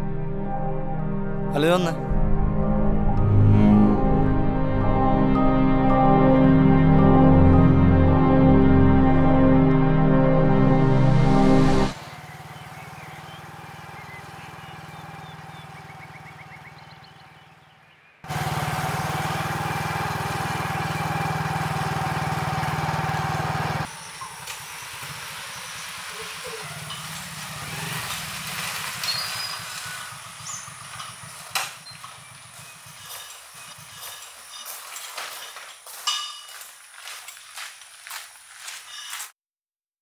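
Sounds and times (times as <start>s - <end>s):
motorcycle engine running: 11.2s - 35.7s
outdoor ambience: 11.2s - 39.4s.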